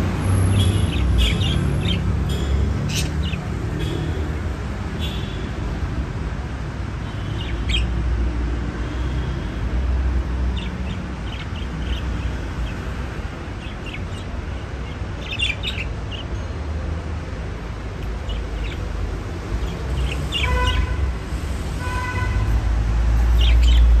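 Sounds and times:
budgerigars chirping: 0:00.5 - 0:04.1, 0:07.4 - 0:07.9, 0:10.6 - 0:12.9, 0:13.6 - 0:16.3, 0:18.0 - 0:18.9, 0:19.6 - 0:21.0.

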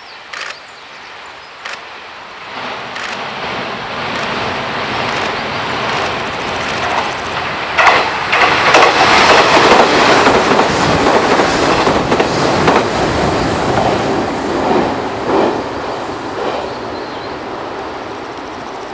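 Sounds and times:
train wheels clattering over rail joints: 0:02.9 - 0:03.3, 0:04.1 - 0:13.0.

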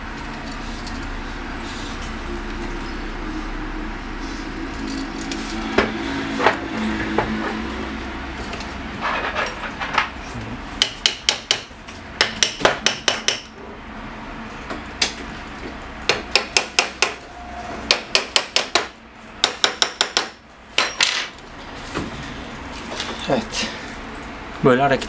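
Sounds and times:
metal parts clicking and clinking: 0:00.1 - 0:01.2, 0:04.6 - 0:05.7, 0:08.4 - 0:10.1, 0:20.8 - 0:21.5.

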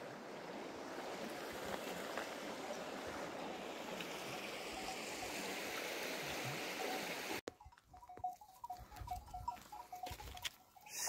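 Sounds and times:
stream rushing over stones: 0:00.0 - 0:07.4.

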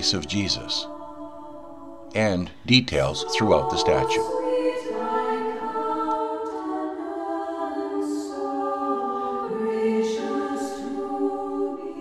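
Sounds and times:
women's choir singing a cappella: 0:00.0 - 0:12.0.

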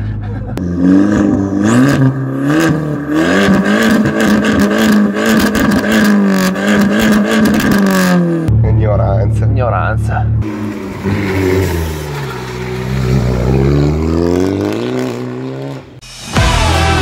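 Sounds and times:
car engine revving loudly: 0:00.6 - 0:08.5, 0:10.4 - 0:16.0.

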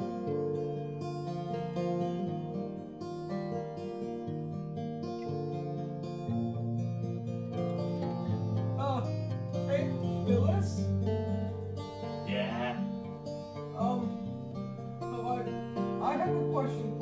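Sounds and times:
music with long held notes: 0:00.0 - 0:17.0
short voice sounds: 0:12.3 - 0:12.9.

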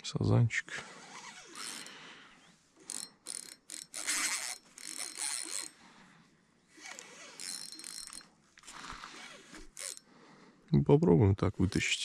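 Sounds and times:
fishing reel whirring and ratcheting: 0:01.0 - 0:02.0, 0:02.8 - 0:05.8, 0:06.8 - 0:10.1.

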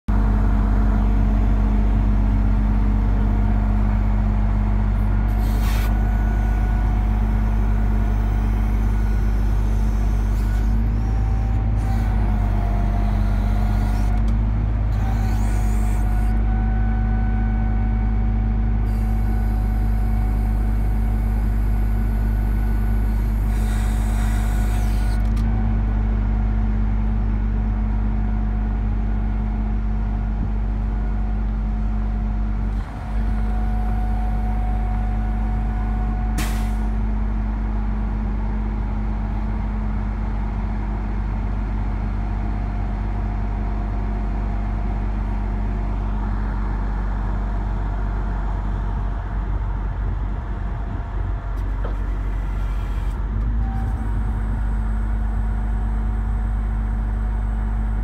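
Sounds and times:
truck engine humming and whining: 0:00.1 - 0:58.0
brief hydraulic hisses: 0:05.4 - 0:06.0, 0:36.4 - 0:36.9.

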